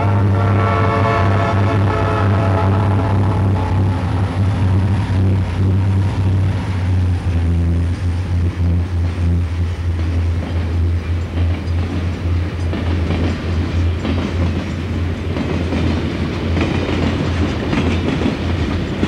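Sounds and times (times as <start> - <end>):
train horn: 0.0 - 10.0
diesel locomotive engine drone: 0.0 - 19.0
freight cars rolling: 0.0 - 19.0.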